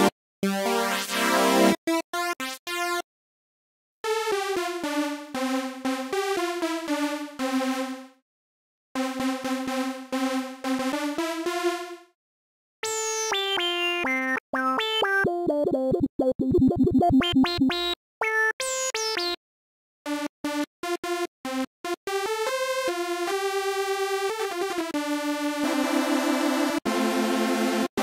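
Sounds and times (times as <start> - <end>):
synthesizer lead notes: 14.0 - 18.0.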